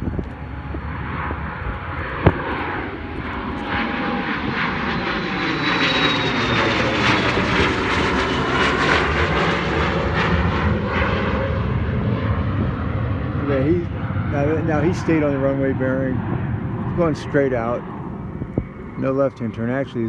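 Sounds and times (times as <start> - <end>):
high jet whine: 0.0 - 20.0
jet passing overhead: 0.0 - 20.0.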